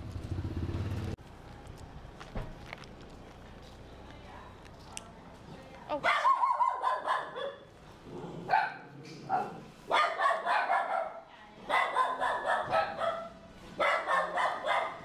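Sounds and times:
small dogs barking: 5.9s - 7.8s, 8.4s - 15.0s.

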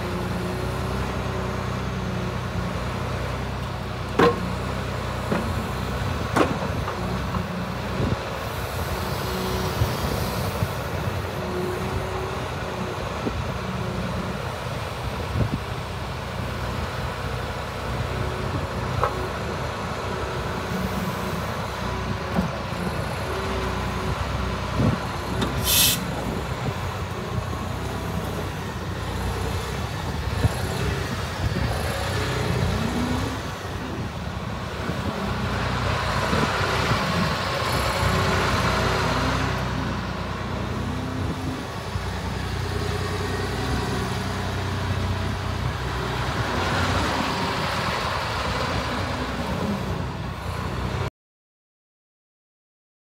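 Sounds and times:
excavator diesel engine running: 0.0s - 51.1s
hydraulic hiss: 25.6s - 26.2s.

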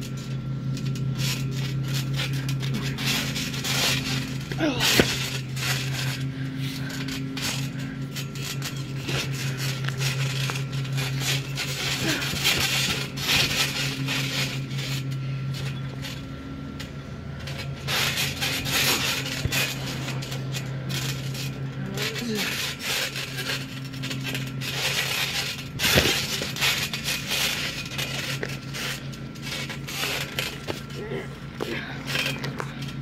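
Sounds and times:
metal springs creaking: 0.0s - 33.0s
steady low hum: 0.0s - 33.0s
thumps on trampoline mat: 4.6s - 6.1s, 24.3s - 26.9s.

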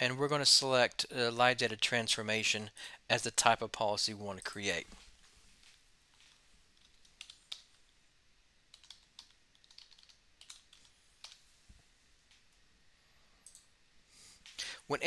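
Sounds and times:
typing on computer keyboard: 7.1s - 7.6s, 8.7s - 11.4s.

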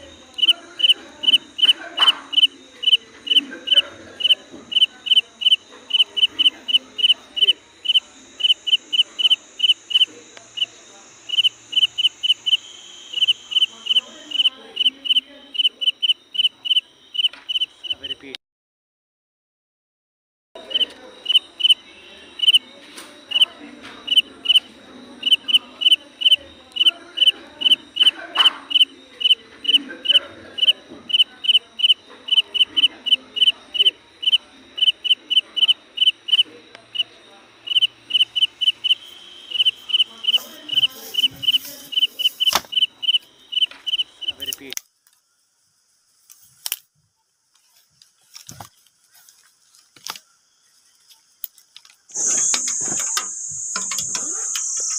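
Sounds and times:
low outdoor murmur: 0.0s - 18.4s, 20.6s - 54.9s
animal chirping: 0.4s - 10.7s, 11.3s - 18.2s, 20.7s - 21.8s, 22.4s - 22.7s, 23.3s - 44.6s, 52.1s - 54.9s.

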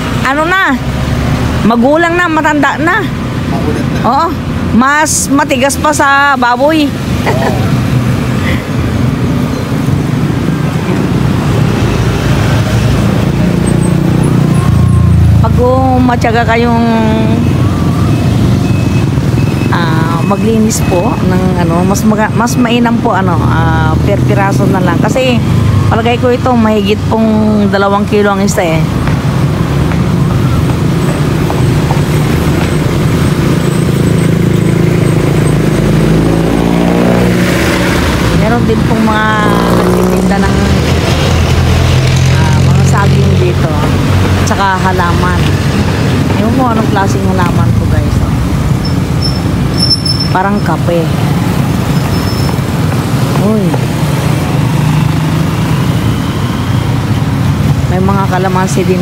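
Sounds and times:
traffic rumble: 0.0s - 59.0s.

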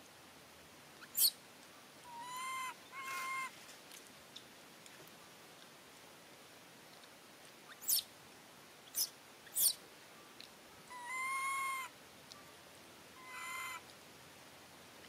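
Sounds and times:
young monkey crying: 2.1s - 3.5s, 10.9s - 11.9s, 13.2s - 13.8s.

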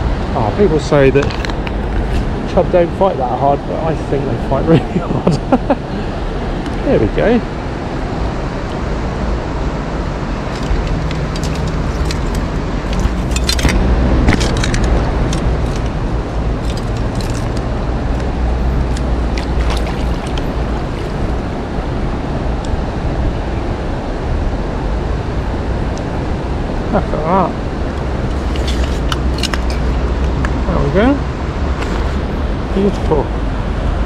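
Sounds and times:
stream water rushing: 0.0s - 23.9s, 24.6s - 34.0s
sharp clicks and ticks: 10.5s - 16.0s, 16.6s - 21.3s.

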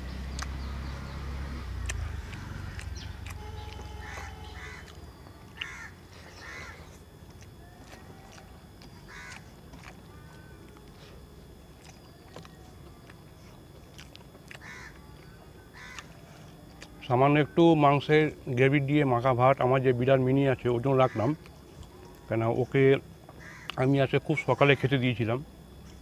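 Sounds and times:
small birds chirping: 0.0s - 18.0s
crows cawing: 2.2s - 7.0s, 7.8s - 10.6s, 14.5s - 15.0s, 15.7s - 16.2s, 20.9s - 21.4s, 23.3s - 23.8s.

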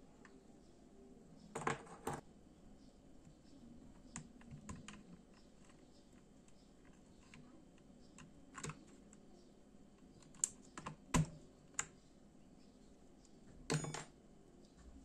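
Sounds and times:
keyboard switch plastic clicks: 10.0s - 12.0s.

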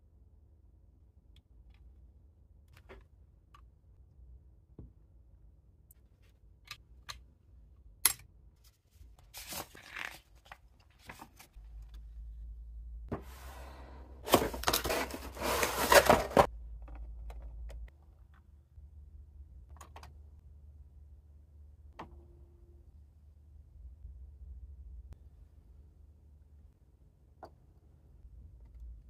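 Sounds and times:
paper rustle: 8.6s - 11.6s, 14.3s - 16.5s
cardboard box crackling and scraping: 14.3s - 16.5s.

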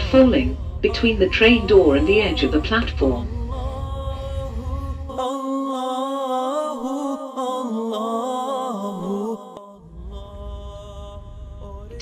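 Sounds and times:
low train rumble: 0.0s - 6.6s, 9.8s - 12.0s
person singing a chant: 0.0s - 12.0s.

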